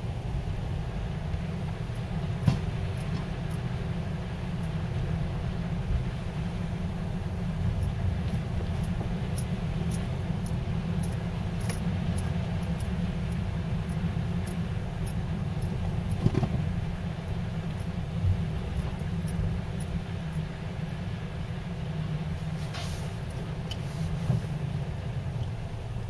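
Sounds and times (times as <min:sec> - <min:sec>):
engine and tyres rumbling: 0:00.0 - 0:26.0
light clicks and rattles: 0:07.4 - 0:20.5.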